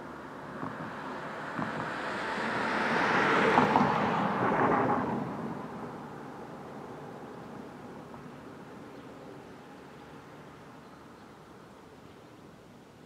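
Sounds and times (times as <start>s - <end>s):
vehicle driving past: 0.4s - 7.8s.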